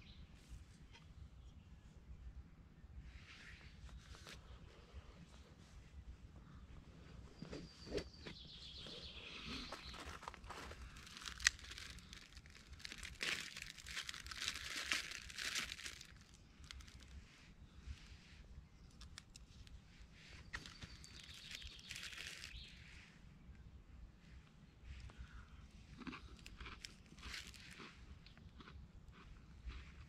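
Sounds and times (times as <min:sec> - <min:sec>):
wrapper crinkling and tearing: 0:09.8 - 0:17.1, 0:20.5 - 0:22.6, 0:27.2 - 0:27.7.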